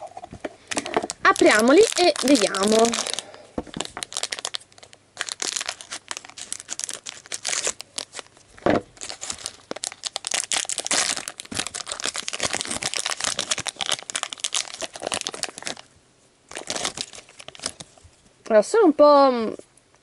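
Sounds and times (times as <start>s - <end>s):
plastic bag crinkling: 0.1s - 15.9s, 16.5s - 18.0s
thump: 8.6s - 8.9s.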